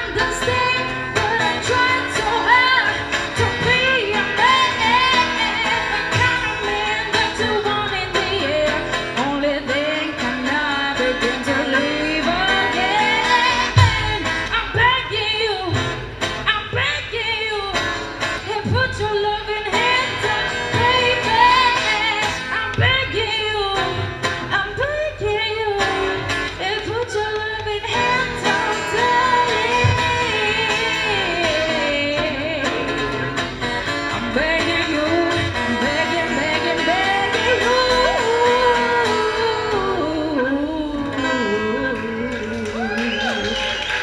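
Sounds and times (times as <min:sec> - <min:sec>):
woman singing: 0:00.0 - 0:33.4, 0:34.1 - 0:43.8
acoustic guitar strumming: 0:00.0 - 0:44.0.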